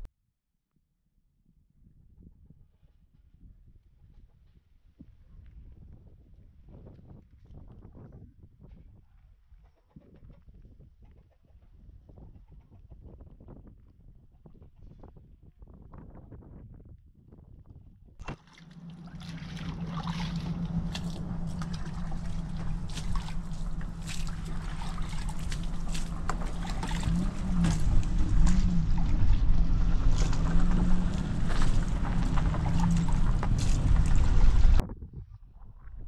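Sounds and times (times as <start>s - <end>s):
water sloshing in a bucket: 18.2s - 34.8s
low hum: 18.2s - 36.0s.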